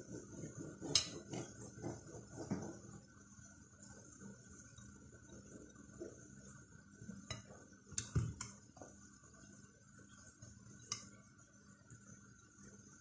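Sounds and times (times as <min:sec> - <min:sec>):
knife clinking on glass plate: 0:00.9 - 0:01.3.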